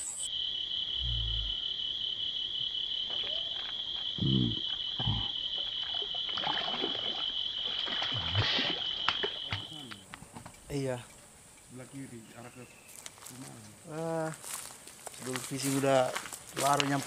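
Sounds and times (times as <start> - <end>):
high-pitched insect chorus: 0.0 - 17.0
fish splashing in water: 5.5 - 9.7.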